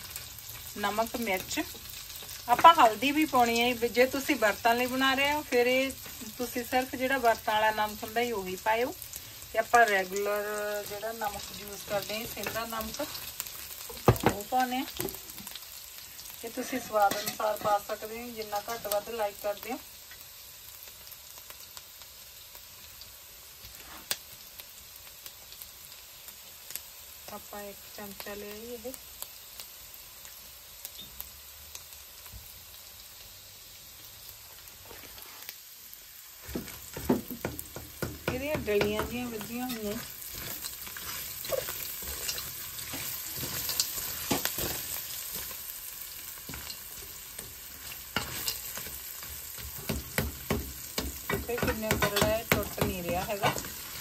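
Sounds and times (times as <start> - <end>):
food frying in oil: 0.0 - 54.0
wooden spatula scraping pan: 16.5 - 17.8, 34.8 - 35.5, 36.4 - 45.5.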